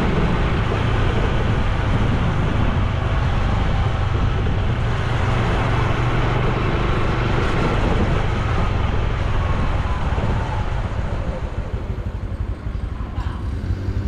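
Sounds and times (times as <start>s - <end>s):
motorcycle engine running: 0.0s - 14.0s
wind and road noise: 0.0s - 14.0s.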